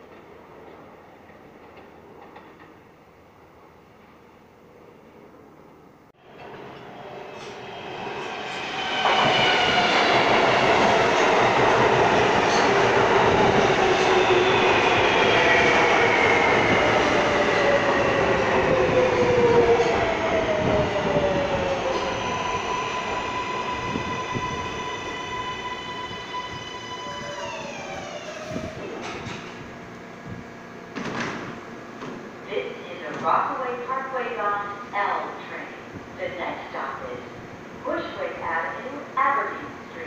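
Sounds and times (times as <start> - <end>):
train wheels on rails: 0.0 - 2.9, 6.3 - 24.8, 26.4 - 32.3.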